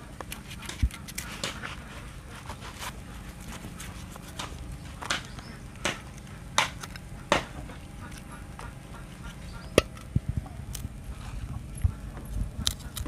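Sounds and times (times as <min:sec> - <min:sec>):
knife scraping fish: 0:00.3 - 0:01.8.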